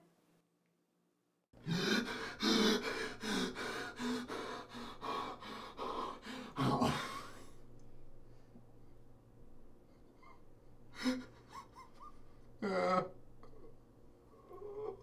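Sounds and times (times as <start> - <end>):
man gasping and sobbing: 1.6 - 7.6, 10.3 - 13.1.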